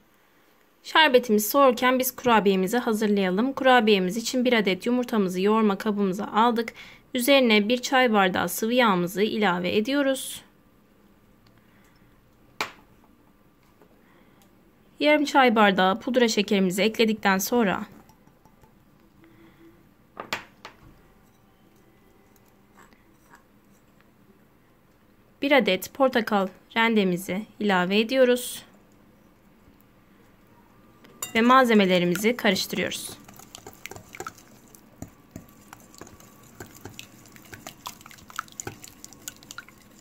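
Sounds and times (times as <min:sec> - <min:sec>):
liquid stirring: 0:18.0 - 0:18.8, 0:31.2 - 0:40.0
whisk clicking against glass bowl: 0:32.1 - 0:40.0.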